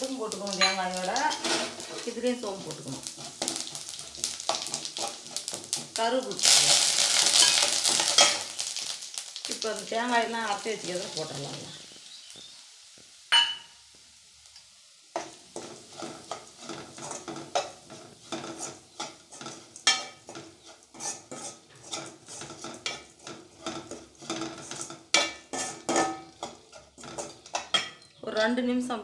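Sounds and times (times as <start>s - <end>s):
metal spatula scraping a pan: 0.5s - 8.6s, 15.1s - 28.1s.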